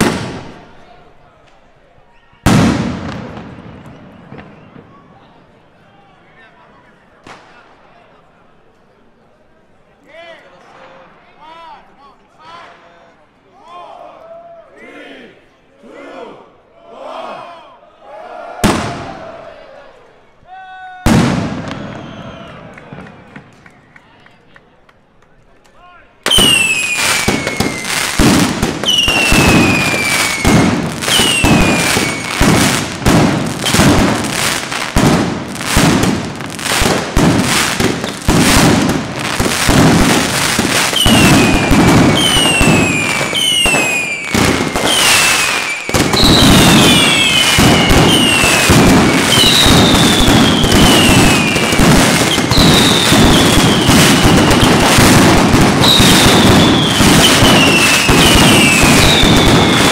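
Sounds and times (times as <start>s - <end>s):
firecrackers banging: 0.0s - 0.8s, 2.5s - 5.2s, 21.1s - 23.7s, 26.2s - 59.9s
whistling pyrotechnics: 2.5s - 5.1s, 21.1s - 22.8s, 26.3s - 36.1s, 36.8s - 59.9s.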